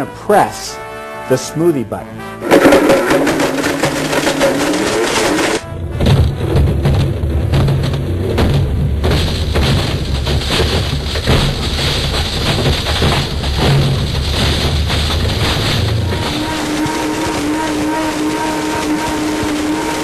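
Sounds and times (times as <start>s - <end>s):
crunching and rattling fragments: 2.4s - 17.0s.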